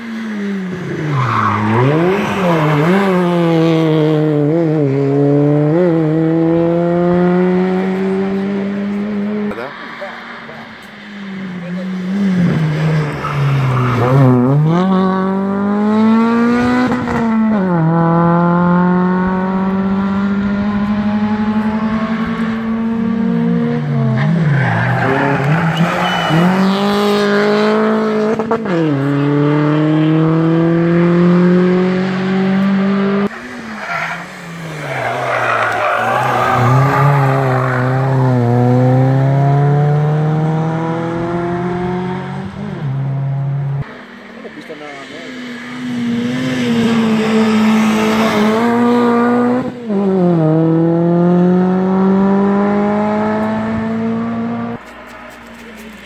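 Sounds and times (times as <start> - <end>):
race car engines accelerating: 0.0 - 56.0
tyres squealing: 24.4 - 26.8, 33.3 - 38.3.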